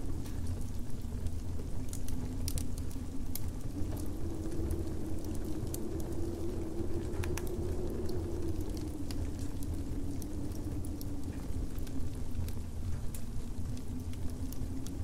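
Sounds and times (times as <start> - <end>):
low wind rumble: 0.0 - 15.0
wood fire crackling: 0.0 - 15.0.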